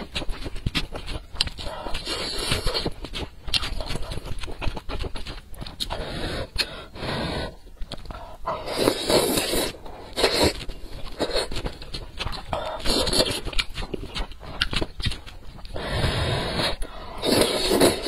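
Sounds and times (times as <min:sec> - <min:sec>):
wet chewing: 0:00.0 - 0:18.0
slurping noodles: 0:08.6 - 0:11.6, 0:15.7 - 0:18.0.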